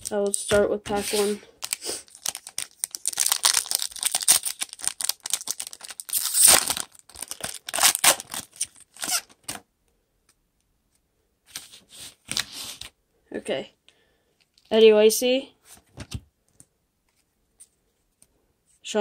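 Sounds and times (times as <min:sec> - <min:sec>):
foil wrapper tearing and crinkling: 0:01.6 - 0:09.4.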